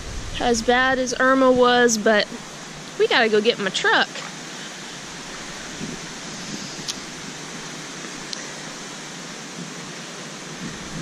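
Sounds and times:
wind rushing: 0.0 - 3.0, 5.0 - 8.0.

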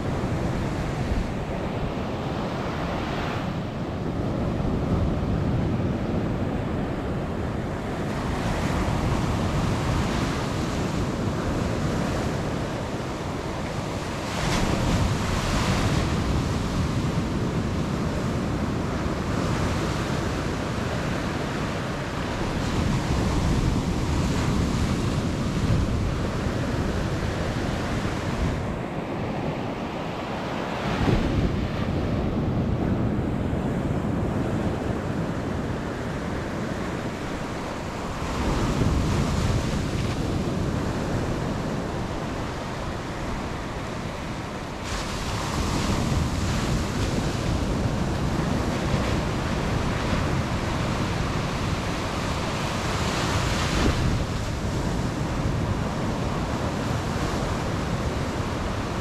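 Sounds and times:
surf washing up beach: 0.0 - 59.0.

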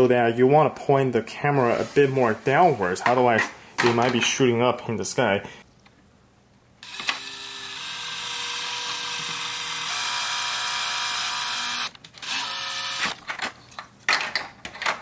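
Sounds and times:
cordless drill motor whine: 6.8 - 13.2.

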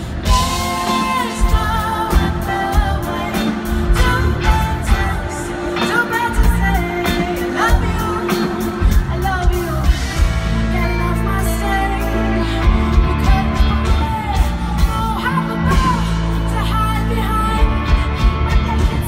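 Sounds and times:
steady drum beat: 0.0 - 11.0
electric guitar: 0.0 - 19.0
woman singing into microphone: 0.2 - 19.0.

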